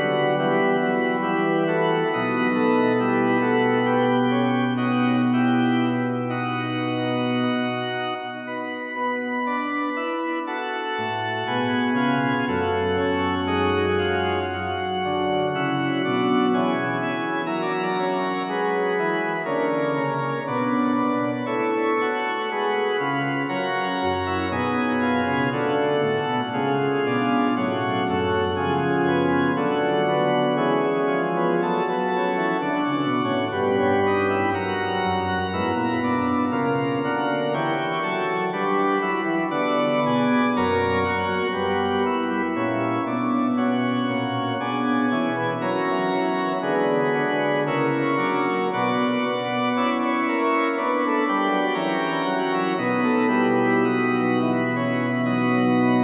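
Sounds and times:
church organ playing held chords: 0.0s - 56.0s.

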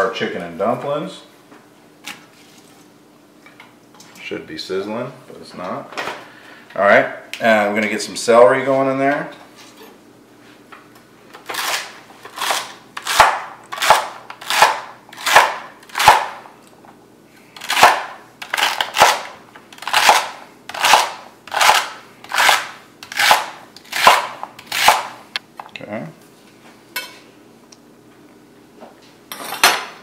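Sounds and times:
knife chopping celery on board: 12.4s - 16.4s, 17.6s - 25.1s.

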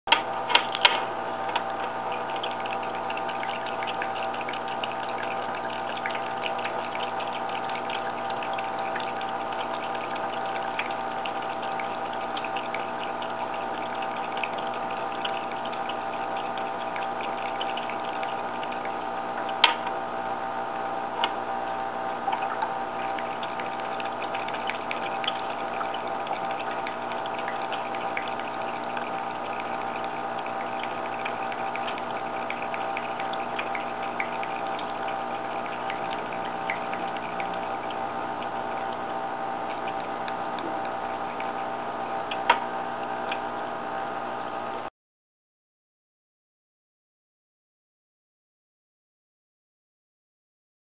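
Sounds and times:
small pump humming: 0.1s - 44.9s
water trickling: 0.1s - 44.9s
sharp click: 19.6s - 19.9s.

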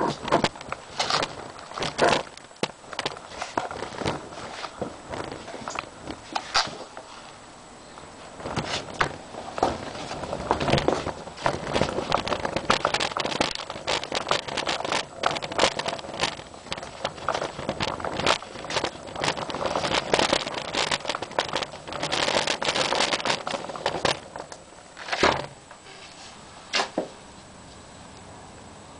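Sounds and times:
irregular clattering and clicking: 0.0s - 7.1s, 8.4s - 25.5s
faint steady hiss: 0.0s - 28.9s.

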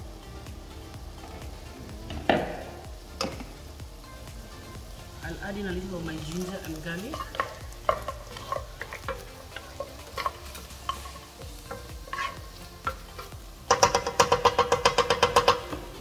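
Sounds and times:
faint sizzle: 0.0s - 16.0s
wooden spatula stirring in pot: 5.1s - 16.0s.

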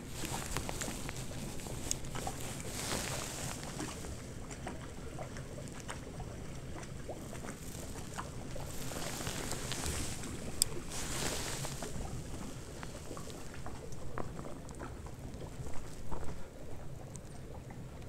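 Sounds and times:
footsteps crunching in snow: 0.0s - 4.3s, 7.3s - 13.9s.

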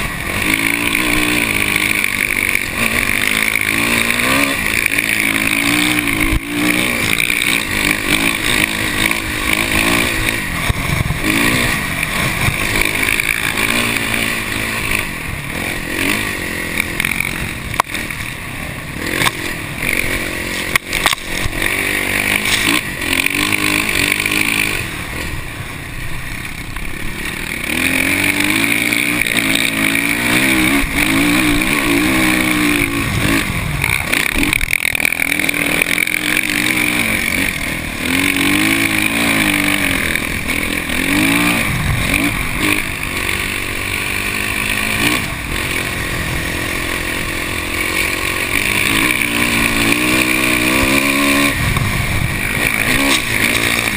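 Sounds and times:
dirt bike engine revving: 0.0s - 53.9s.

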